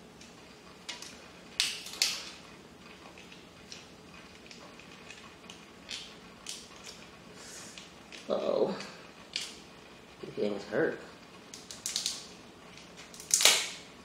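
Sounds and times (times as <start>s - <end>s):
crab shells cracking: 1.0s - 2.3s, 5.8s - 7.0s, 9.3s - 9.6s, 11.5s - 12.3s, 13.0s - 13.8s.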